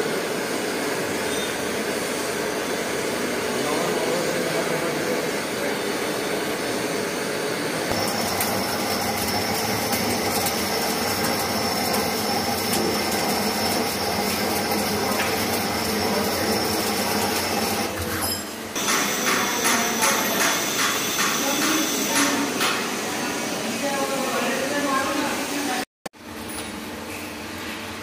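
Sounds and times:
lathe cutting metal: 5.3s - 18.0s, 18.8s - 23.0s.

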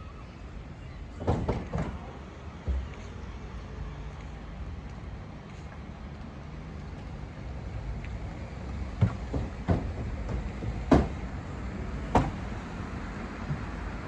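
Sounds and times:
thumps on wooden boards: 1.2s - 2.0s, 9.0s - 11.2s, 12.1s - 12.4s.

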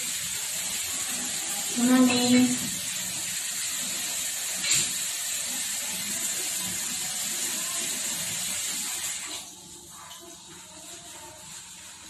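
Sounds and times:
water running from tap: 0.0s - 12.0s.

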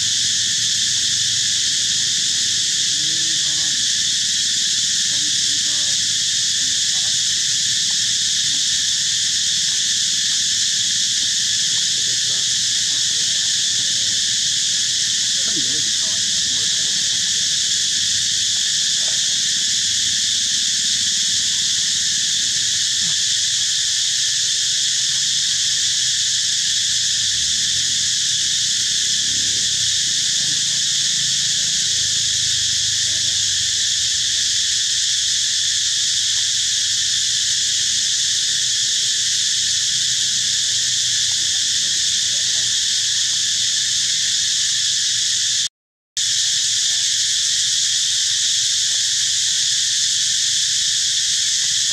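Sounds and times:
insect chorus droning: 0.0s - 51.9s.

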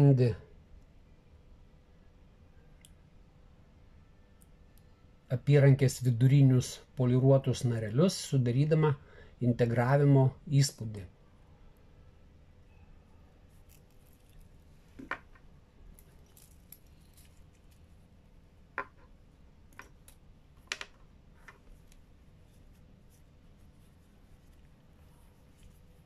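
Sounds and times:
watches clinking: 13.5s - 18.0s.

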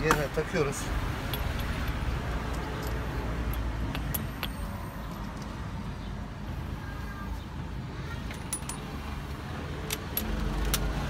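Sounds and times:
metal parts clinking: 1.2s - 5.6s, 8.2s - 9.1s, 9.8s - 10.9s.

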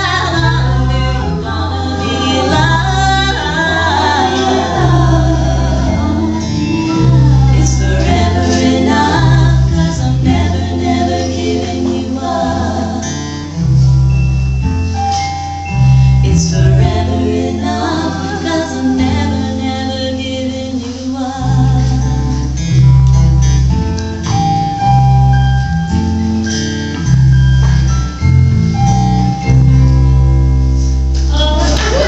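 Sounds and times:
women singing together: 0.0s - 13.3s, 16.2s - 22.4s
strummed acoustic guitars: 0.0s - 19.7s
deep sustained bass notes: 0.0s - 20.8s, 21.4s - 32.0s.

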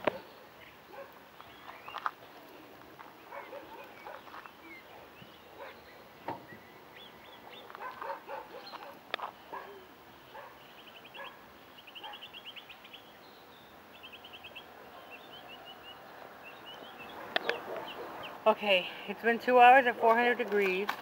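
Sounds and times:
faint dog barks: 0.0s - 1.2s, 3.3s - 6.0s, 7.2s - 12.4s, 14.7s - 15.4s, 16.7s - 18.4s
birds chirping in trills: 0.1s - 19.8s.

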